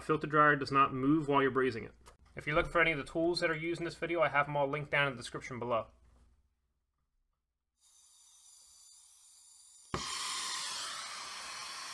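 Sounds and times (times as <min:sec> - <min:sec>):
gas hiss: 0:07.8 - 0:11.9.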